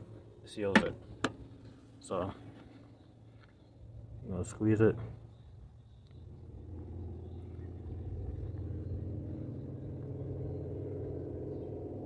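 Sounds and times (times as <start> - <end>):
engine running: 0.0 - 12.0.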